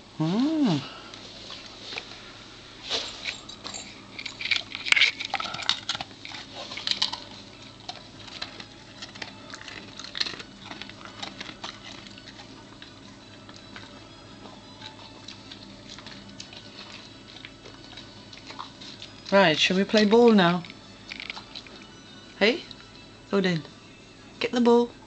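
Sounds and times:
dog crunching biscuit: 3.2s - 23.0s.

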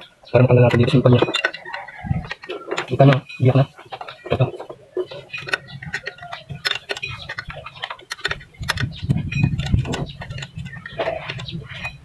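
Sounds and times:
clicks and knocks of plastic fan: 3.9s - 12.0s.

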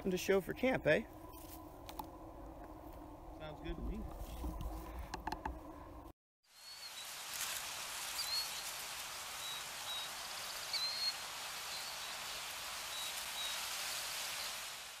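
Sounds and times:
steady hiss: 6.5s - 15.0s
high bird chirps: 9.4s - 12.2s.

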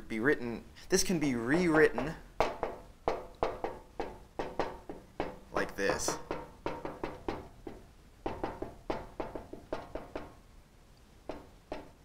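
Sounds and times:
marker writing on whiteboard: 1.7s - 10.4s.

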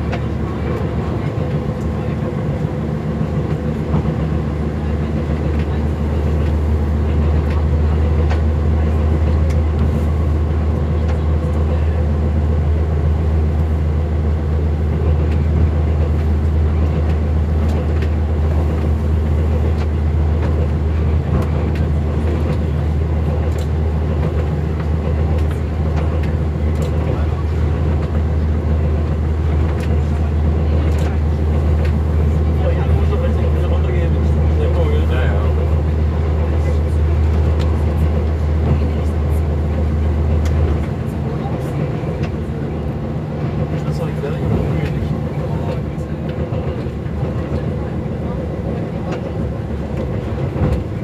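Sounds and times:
diesel engine humming: 0.0s - 51.0s.

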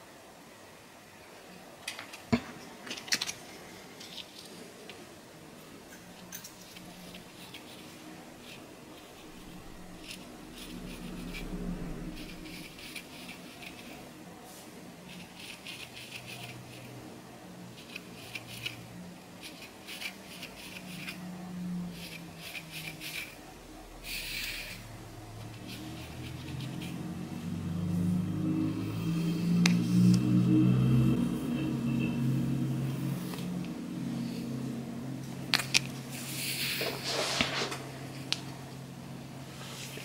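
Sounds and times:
faint low hum: 0.0s - 40.0s
metal comb scratching through hair: 15.1s - 17.0s, 17.8s - 21.2s, 22.0s - 23.4s
comb scraping through hair: 17.8s - 21.3s, 21.9s - 24.8s, 35.7s - 37.9s.

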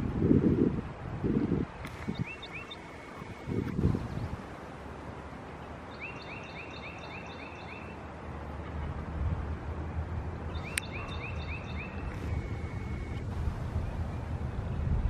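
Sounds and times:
wind rumble: 0.0s - 6.0s, 7.9s - 15.0s
sharp click: 1.8s - 3.8s
songbird whistling: 2.0s - 3.6s, 5.9s - 8.0s, 10.5s - 13.2s.

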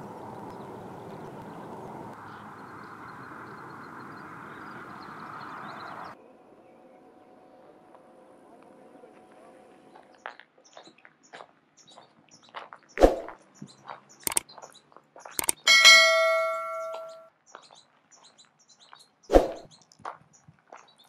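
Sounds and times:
birds chirping faintly: 0.0s - 7.8s, 9.8s - 21.0s
metal clanging and ringing: 15.4s - 17.3s.

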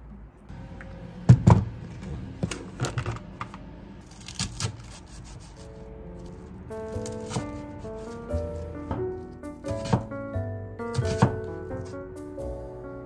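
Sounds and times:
soft background music: 4.0s - 13.0s.

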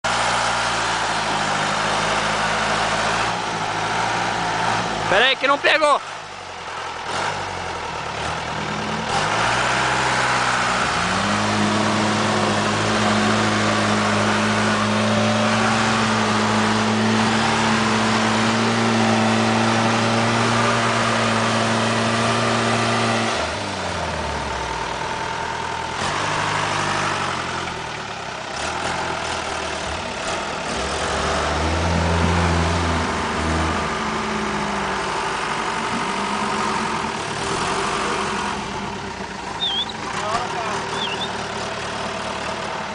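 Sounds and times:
off-road engines revving under load: 0.1s - 42.9s.

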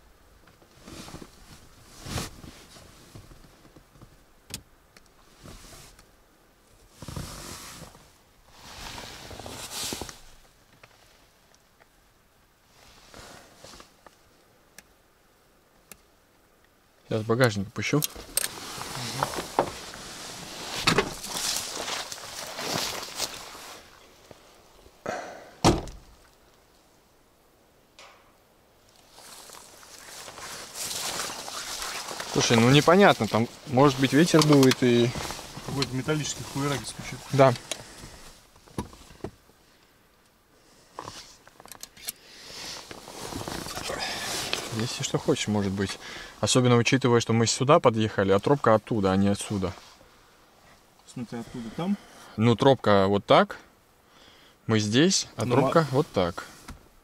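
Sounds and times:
rustling and handling knocks: 18.1s - 20.0s
loud sharp thunk: 25.6s - 26.0s.

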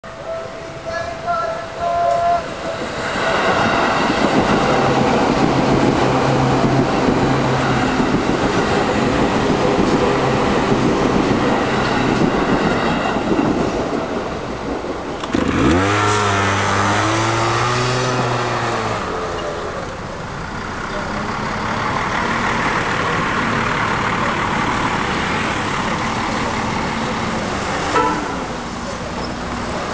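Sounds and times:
crossing bell ringing: 0.0s - 5.2s
street traffic noise: 0.0s - 29.9s
train wheels on track: 0.1s - 29.9s
vehicle engines revving: 2.8s - 29.9s.

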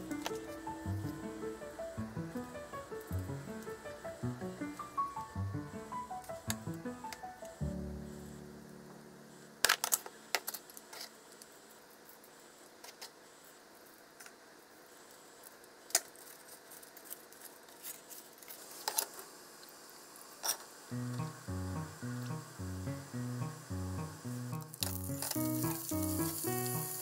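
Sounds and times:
music: 0.0s - 9.5s, 20.9s - 27.0s.

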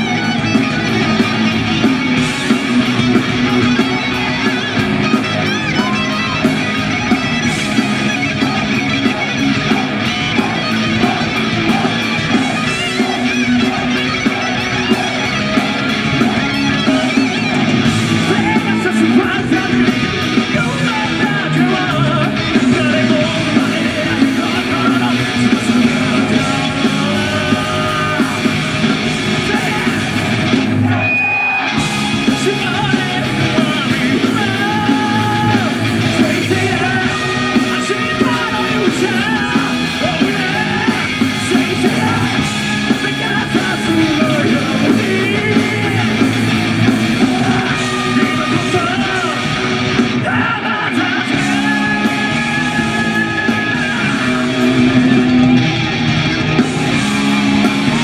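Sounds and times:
man singing and shouting: 0.0s - 55.6s
bass guitar: 0.0s - 58.0s
distorted electric guitars: 0.0s - 58.0s
drums: 0.0s - 58.0s.

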